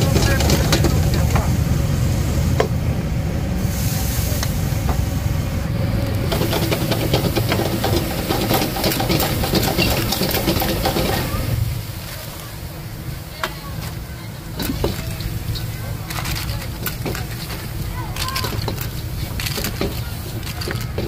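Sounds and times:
wok burner low rumble: 0:00.0 - 0:21.0
clams sizzling in a wok: 0:03.6 - 0:05.1, 0:06.2 - 0:21.0.

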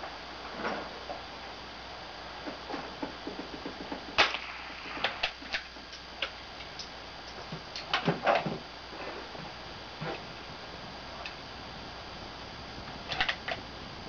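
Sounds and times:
sharp crack: 0:04.1 - 0:07.0.

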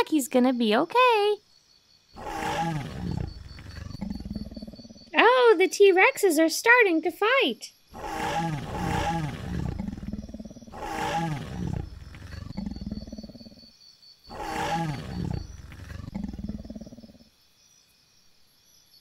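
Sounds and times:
growling dinosaur roars: 0:02.2 - 0:05.0, 0:08.0 - 0:13.5, 0:14.3 - 0:17.2.

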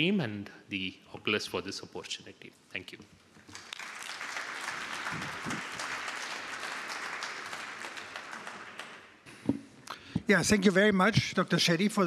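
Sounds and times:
audience applauding: 0:03.5 - 0:09.2.

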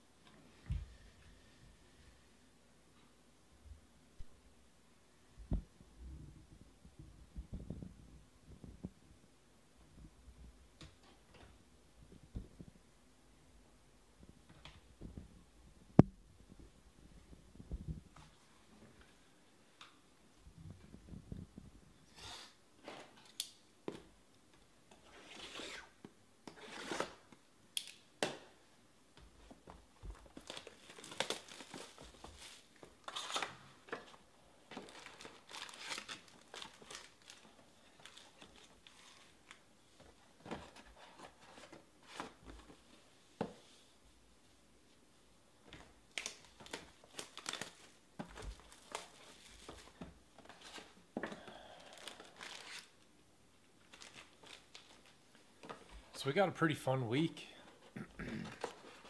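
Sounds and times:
shrink-wrap and cardboard tearing: 0:26.6 - 0:27.3, 0:30.2 - 0:33.8, 0:34.8 - 0:39.6, 0:46.1 - 0:49.9, 0:51.9 - 0:53.0, 0:53.8 - 0:55.2
foil packs crinkling: 0:30.2 - 0:33.6, 0:34.8 - 0:39.4, 0:46.1 - 0:51.0, 0:51.8 - 0:53.0, 0:53.8 - 0:55.2.

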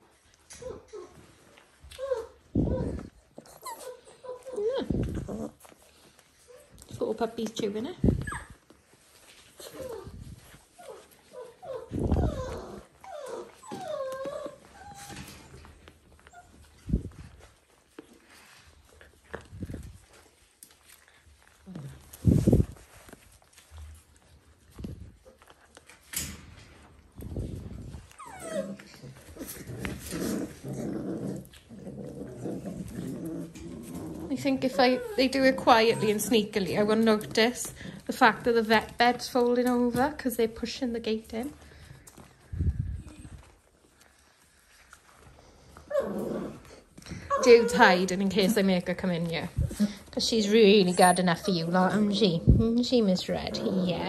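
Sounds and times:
puppies play-growling: 0:00.0 - 0:54.0
puppies whining: 0:00.4 - 0:07.0, 0:08.0 - 0:18.4, 0:27.2 - 0:44.1, 0:45.0 - 0:54.0
puppy yelp: 0:01.9 - 0:04.8, 0:08.2 - 0:08.6, 0:10.8 - 0:15.4, 0:28.1 - 0:29.2.

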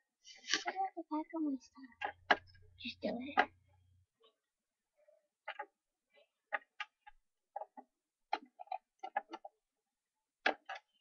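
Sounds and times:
plastic toys clicking and clacking: 0:00.4 - 0:00.9, 0:01.9 - 0:03.6, 0:05.4 - 0:05.8, 0:06.4 - 0:09.6, 0:10.4 - 0:11.0.

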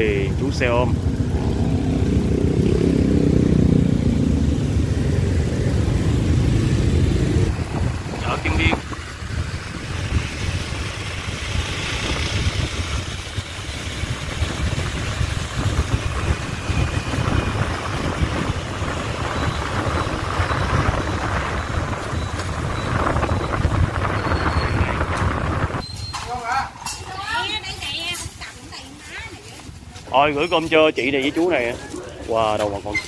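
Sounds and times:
road noise hiss: 0:00.0 - 0:25.8
motorbike engine rumble: 0:00.0 - 0:26.4.

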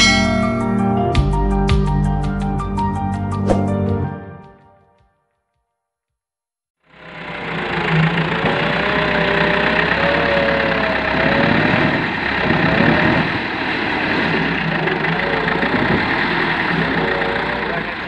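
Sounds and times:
tractor diesel engine under load: 0:06.9 - 0:18.0.

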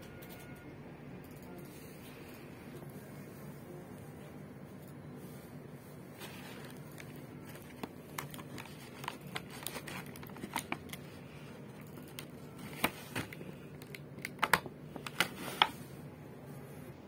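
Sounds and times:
plastic packaging clicks and crinkles: 0:06.2 - 0:15.8.

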